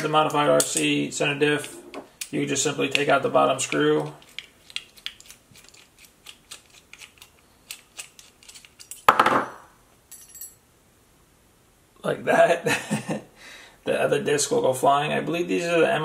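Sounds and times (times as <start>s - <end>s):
faint metal clink: 10.1s - 10.6s.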